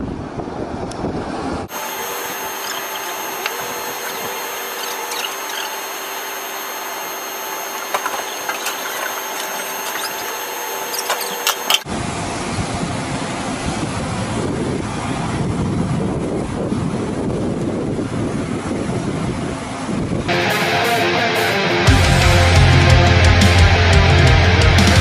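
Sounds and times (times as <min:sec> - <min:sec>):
mechanical hum and whine: 0:00.0 - 0:25.0
wind rumble: 0:11.9 - 0:20.3.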